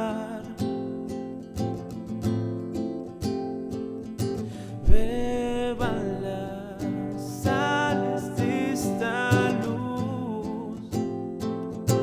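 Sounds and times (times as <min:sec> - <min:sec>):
man singing: 0:00.0 - 0:01.1, 0:04.6 - 0:12.0
acoustic guitar strummed: 0:00.0 - 0:12.0.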